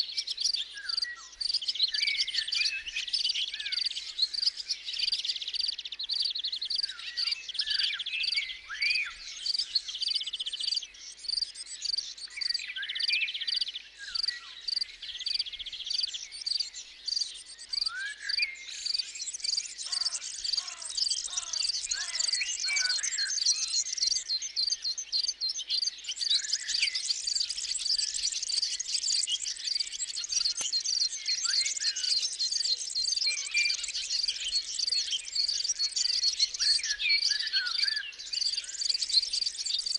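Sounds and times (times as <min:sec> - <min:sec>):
birds singing and calling: 0:00.0 - 0:39.9
lower falling bird calls: 0:14.0 - 0:39.5
insect chirping: 0:14.2 - 0:15.4.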